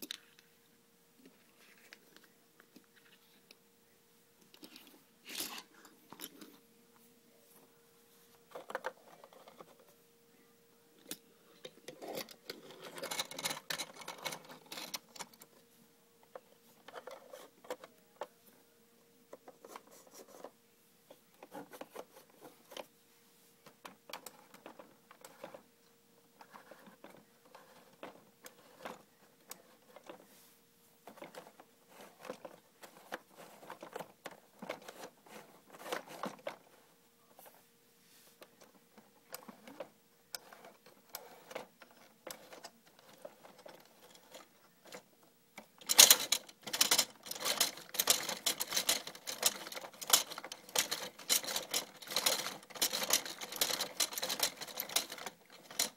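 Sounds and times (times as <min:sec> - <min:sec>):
plastic toy parts clicking and rattling: 0:08.5 - 0:09.8, 0:11.0 - 0:15.6, 0:16.3 - 0:17.9, 0:23.6 - 0:25.7, 0:26.4 - 0:30.2, 0:31.0 - 0:36.8, 0:38.6 - 0:55.9.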